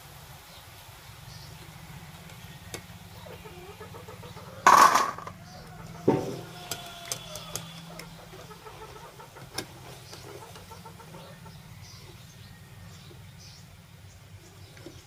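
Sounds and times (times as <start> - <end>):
wire skimmer clanging on steel plate: 4.7 - 5.4, 6.1 - 8.1.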